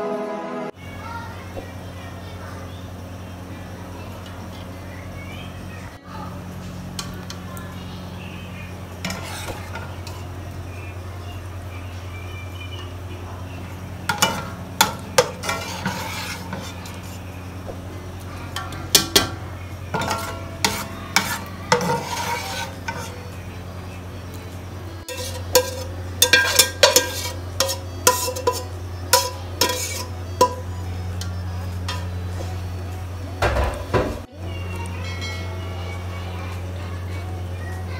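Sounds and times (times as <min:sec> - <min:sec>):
steady low hum: 0:00.1 - 0:37.9
metal ladle scraping a pot: 0:09.0 - 0:10.3, 0:14.1 - 0:17.4, 0:18.5 - 0:23.3, 0:25.0 - 0:32.2.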